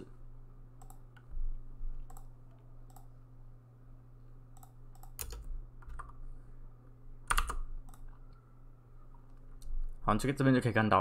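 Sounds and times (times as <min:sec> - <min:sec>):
steady low hum: 0:00.0 - 0:11.0
keyboard and mouse clicking: 0:00.8 - 0:01.3, 0:02.0 - 0:03.1, 0:04.5 - 0:06.2, 0:07.2 - 0:08.2.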